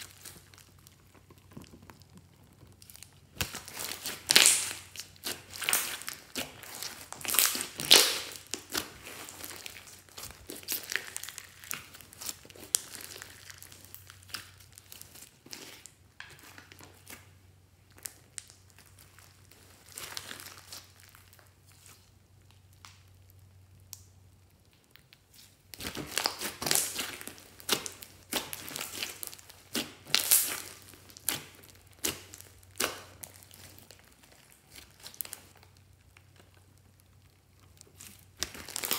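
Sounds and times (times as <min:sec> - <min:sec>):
hands squishing crackly slime: 0:00.0 - 0:38.9.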